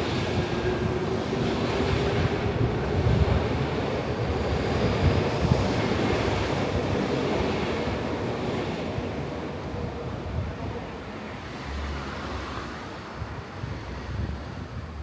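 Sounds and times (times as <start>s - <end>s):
city street traffic: 0.0s - 15.0s
wind rumbling on microphone: 0.0s - 15.0s.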